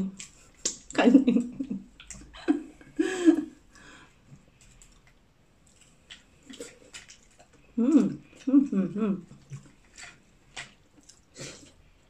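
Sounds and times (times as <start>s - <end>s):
woman murmuring: 7.8s - 9.3s.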